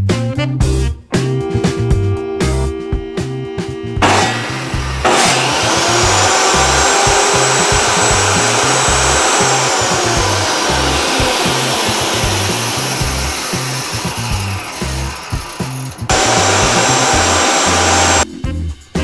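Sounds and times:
dust collector running: 0:04.0 - 0:18.2
table saw motor whine: 0:04.0 - 0:18.2.

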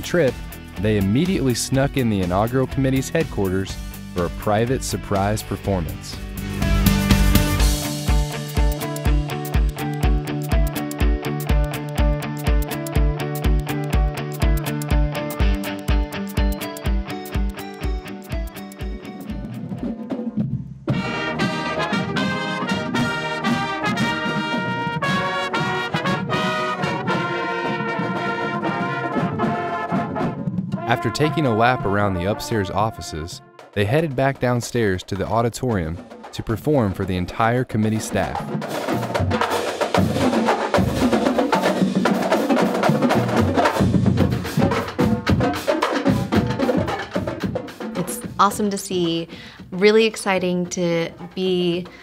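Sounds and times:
brass band playing chords: 0:00.0 - 0:19.7, 0:20.9 - 0:35.2, 0:37.8 - 0:49.1
snare drum strokes: 0:20.9 - 0:32.9, 0:33.6 - 0:48.7.

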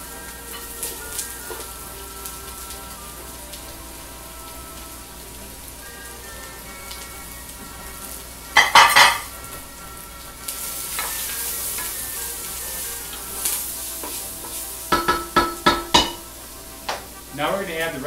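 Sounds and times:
onions and mushrooms sizzling: 0:00.0 - 0:18.0
spoon clattering against pan: 0:08.6 - 0:09.3, 0:10.9 - 0:12.0, 0:14.0 - 0:17.1
spoon knocking steel pot: 0:08.6 - 0:09.3, 0:14.0 - 0:16.3.

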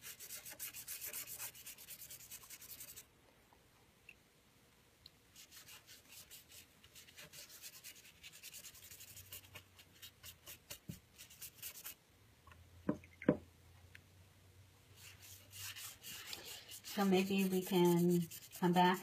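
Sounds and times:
paintbrush scrubbing on paper: 0:00.0 - 0:03.1, 0:05.3 - 0:12.0, 0:15.0 - 0:19.0.

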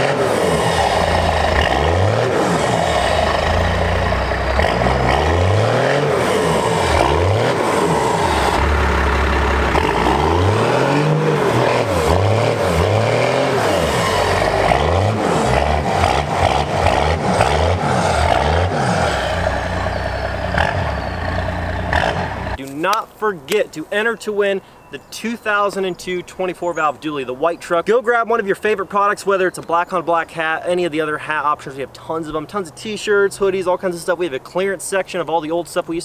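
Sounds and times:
diesel truck engine revving: 0:00.0 - 0:22.6.

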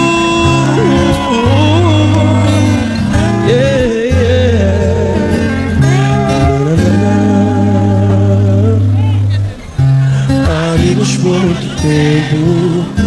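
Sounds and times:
person singing a melody: 0:00.0 - 0:09.4, 0:10.2 - 0:13.0
sustained bass notes: 0:00.0 - 0:13.0.

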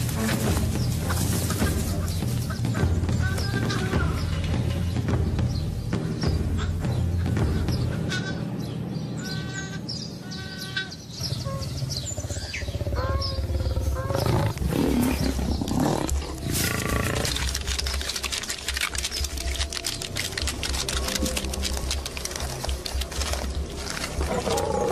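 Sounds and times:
big cats calling: 0:09.2 - 0:24.9.

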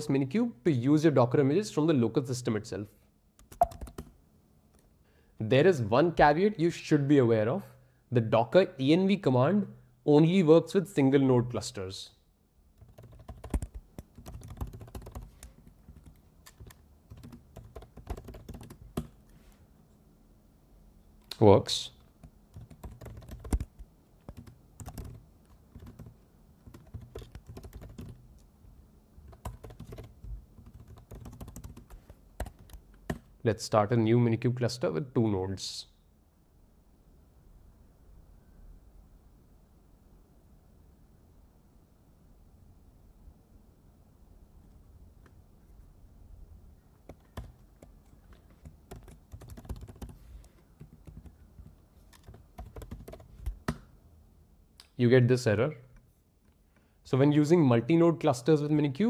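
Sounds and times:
computer keyboard typing: 0:03.4 - 0:04.1, 0:12.8 - 0:19.2, 0:22.1 - 0:28.2, 0:29.3 - 0:33.3, 0:47.0 - 0:50.2, 0:50.8 - 0:53.8.

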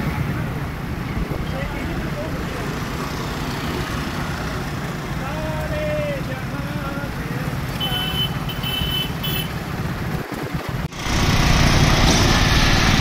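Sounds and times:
wind rumbling on microphone: 0:00.0 - 0:03.5, 0:09.6 - 0:13.0.

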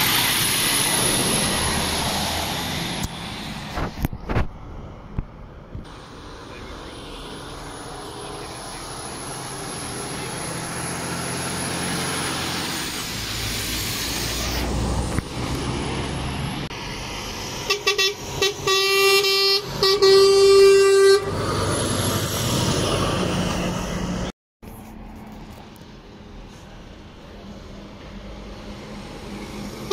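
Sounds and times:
lorry engine passing: 0:05.9 - 0:19.8, 0:20.4 - 0:24.3
lorry horn toots and blasts: 0:17.7 - 0:21.5.

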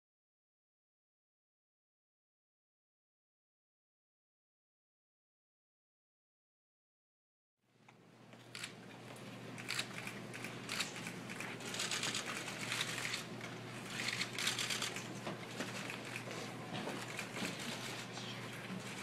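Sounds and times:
low electrical hum: 0:07.6 - 0:19.0
rustling and clicking: 0:08.4 - 0:19.0.

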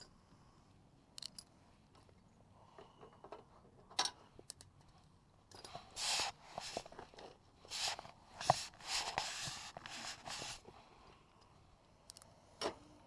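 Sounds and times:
rustling scraping strokes: 0:05.8 - 0:10.7.

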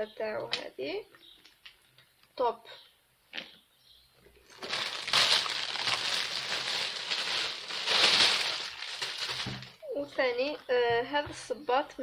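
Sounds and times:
rustling and crinkling material: 0:04.3 - 0:10.3.

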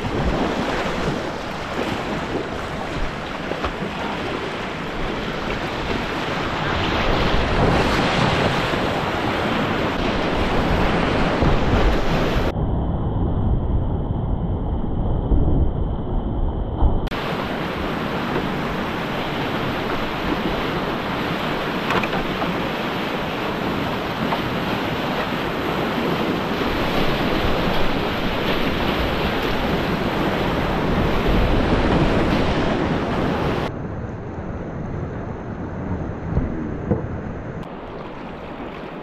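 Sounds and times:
whitewater rushing: 0:00.0 - 0:12.5, 0:17.1 - 0:33.7.

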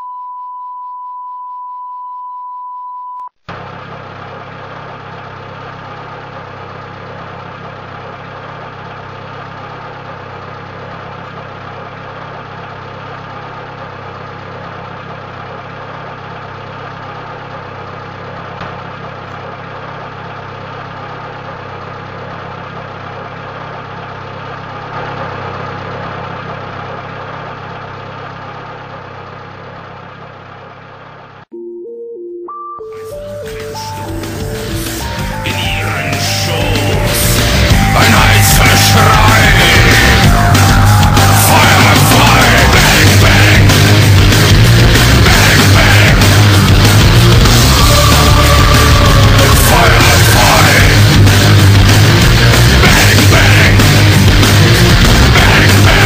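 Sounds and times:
engine idling: 0:03.4 - 0:31.5, 0:33.2 - 0:56.0
steady beep tone: 0:31.5 - 0:44.1.

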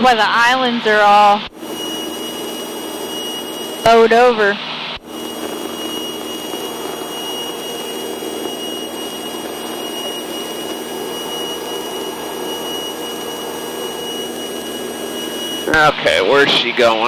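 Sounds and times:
airplane engine and propeller drone: 0:00.0 - 0:17.0
thin high whine: 0:00.0 - 0:17.0.

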